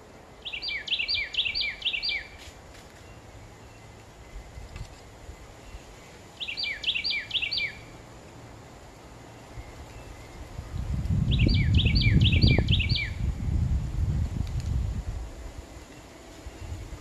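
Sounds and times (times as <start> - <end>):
songbird whistling phrase: 0.4 - 2.4, 6.4 - 7.9, 11.3 - 13.2.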